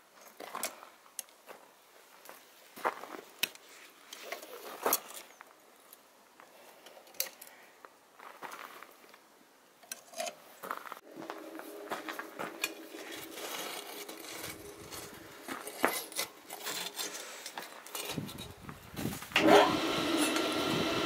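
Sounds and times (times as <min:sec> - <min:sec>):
steady low hum: 0:11.0 - 0:17.0
coal clinking and scraping: 0:11.2 - 0:18.6.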